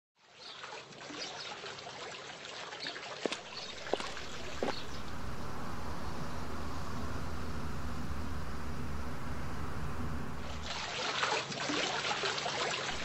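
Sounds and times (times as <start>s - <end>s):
soft water trickling: 3.4s - 13.0s
steady low rumble: 3.6s - 10.8s.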